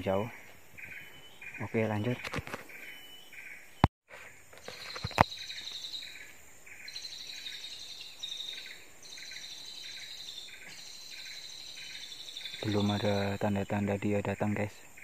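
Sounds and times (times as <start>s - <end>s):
bird chirps: 0.0s - 15.0s
high insect trill: 4.2s - 15.0s.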